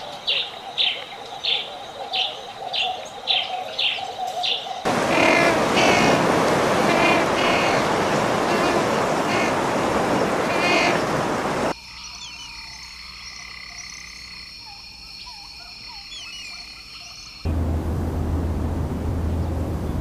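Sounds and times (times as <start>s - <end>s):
penguin colony calling: 4.9s - 11.7s.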